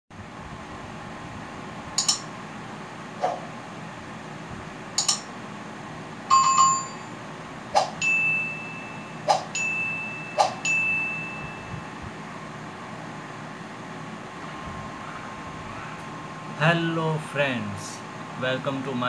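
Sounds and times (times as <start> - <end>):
sharp clicks: 2.0 - 2.3, 5.0 - 5.3
multi-tone bell ding: 6.3 - 7.2, 8.0 - 11.8
steady high chime: 8.0 - 11.9.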